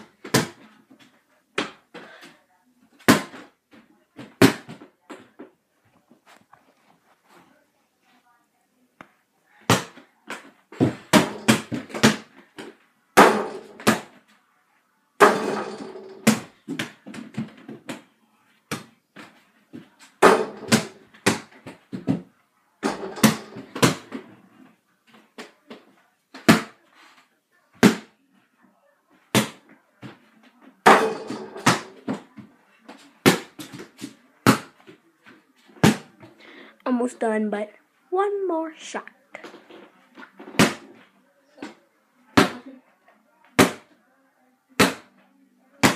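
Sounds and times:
ball striking mini hoop: 10.8 - 12.3, 20.2 - 21.6, 22.8 - 24.1, 30.9 - 32.0.

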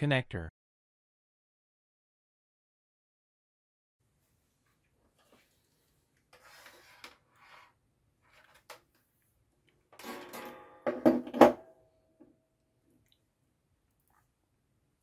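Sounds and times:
metal clatter and knocks on desk: 10.0 - 11.7.

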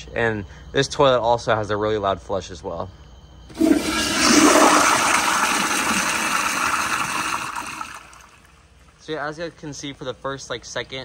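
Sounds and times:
toilet flushing: 3.5 - 8.6.

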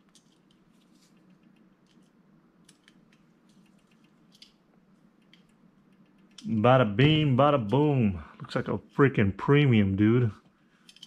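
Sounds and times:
tiny screws clicking: 1.2 - 4.6, 5.2 - 6.5.

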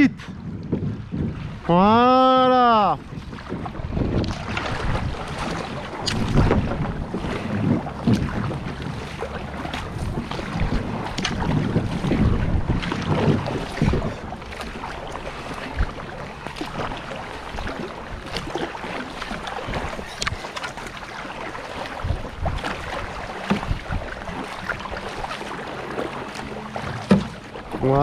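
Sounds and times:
paddles splashing: 0.0 - 28.0
wind buffeting microphone: 0.0 - 28.0
river water rushing: 8.1 - 28.0.

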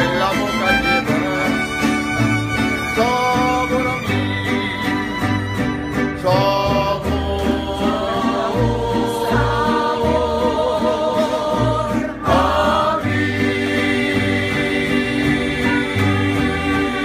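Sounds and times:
plucked bass line: 0.0 - 17.0
strummed guitars: 0.0 - 17.0
several voices singing together: 6.3 - 17.0.

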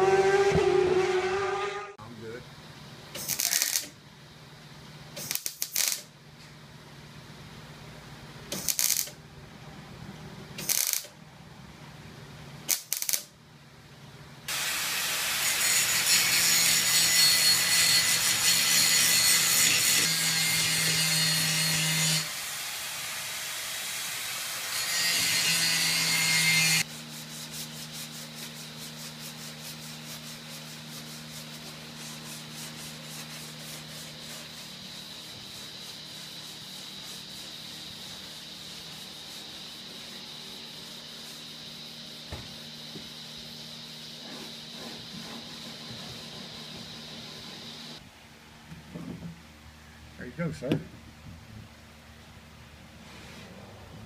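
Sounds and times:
grinder cutting metal: 14.5 - 26.9
hand sanding with block: 24.8 - 47.8.

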